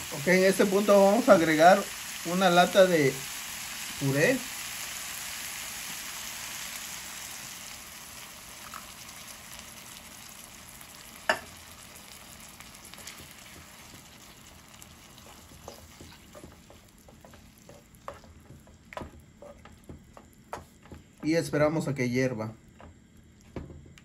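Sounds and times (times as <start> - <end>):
vegetables sizzling in a frying pan: 0.0 - 21.3
wooden spoon scraping a pan: 12.9 - 21.3.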